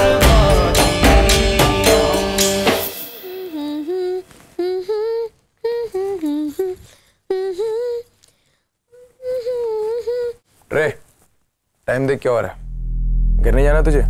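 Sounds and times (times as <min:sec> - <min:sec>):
music cue: 0:00.0 - 0:04.2
woman humming a tune: 0:03.1 - 0:08.1, 0:08.9 - 0:10.4.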